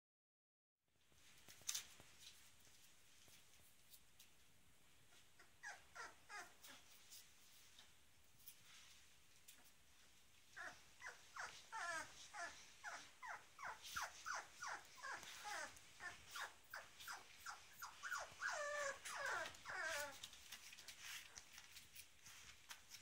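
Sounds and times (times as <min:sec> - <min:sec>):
puppies whining: 0:05.2 - 0:07.0, 0:10.5 - 0:23.0.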